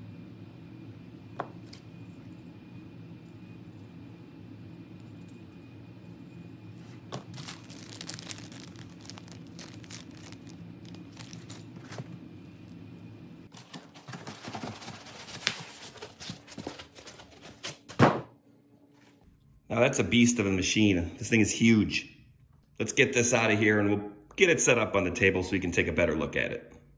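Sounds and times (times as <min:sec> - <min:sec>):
low hum: 0:00.0 - 0:13.5
foam packing rustling: 0:07.1 - 0:12.2, 0:13.5 - 0:17.7
plastic bag crinkling: 0:07.2 - 0:12.2.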